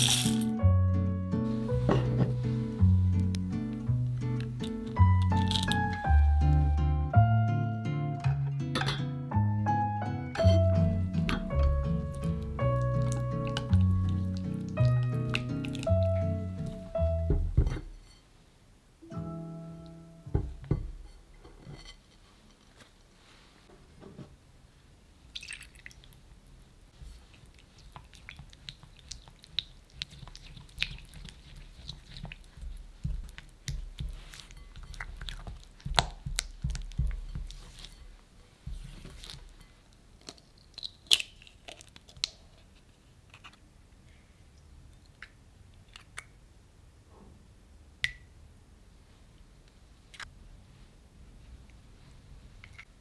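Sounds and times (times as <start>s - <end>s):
eggs cracking: 0.0s - 0.6s, 3.1s - 6.1s, 10.6s - 17.0s, 27.4s - 38.0s, 40.2s - 42.5s
spatula stirring chocolate: 11.2s - 16.9s, 27.0s - 39.8s
spatula tapping glass bowl: 33.0s - 38.0s.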